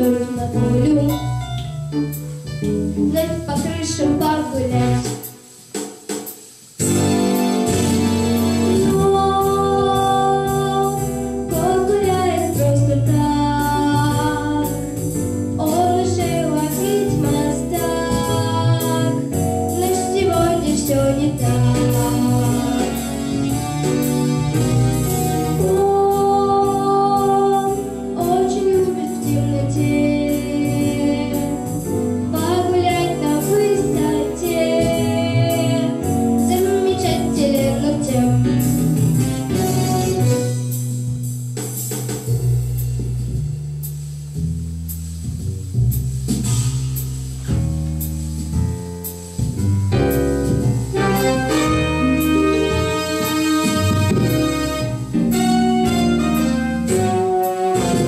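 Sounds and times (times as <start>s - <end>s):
girl singing into a microphone: 0.0s - 1.4s, 3.0s - 5.0s, 8.7s - 14.8s, 15.6s - 22.9s, 25.6s - 31.6s, 32.3s - 38.5s
pop backing track with beat: 0.0s - 58.0s.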